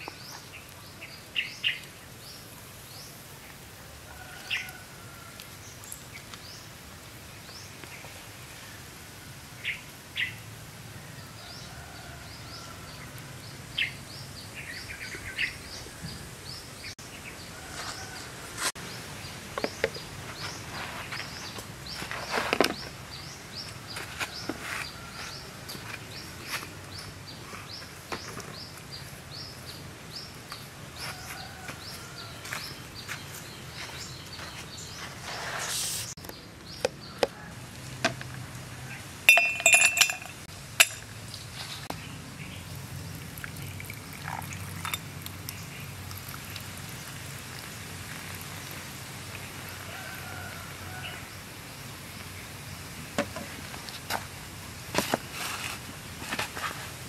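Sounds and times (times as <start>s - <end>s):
ice cubes clinking in a glass: 39.3s - 41.0s
soda pouring over ice: 43.2s - 50.6s.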